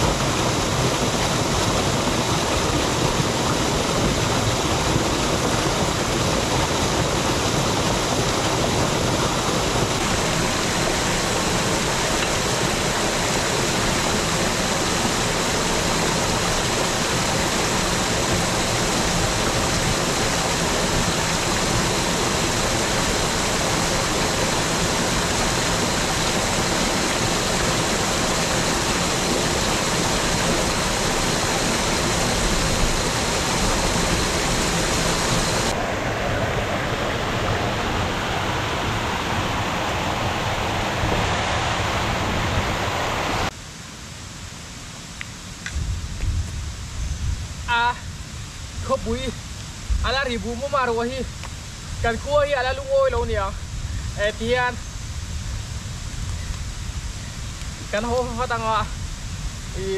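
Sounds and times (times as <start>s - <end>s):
running water rushing: 0.0s - 59.9s.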